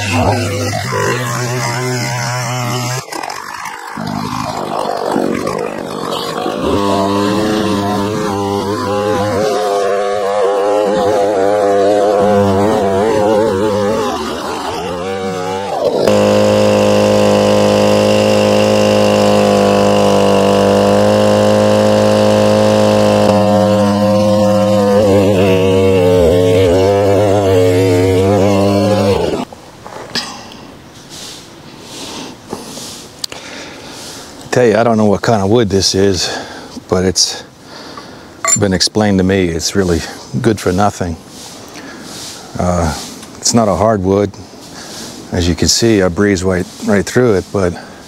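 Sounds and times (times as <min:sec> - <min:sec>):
chainsaw cutting logs: 0:00.0 - 0:29.6.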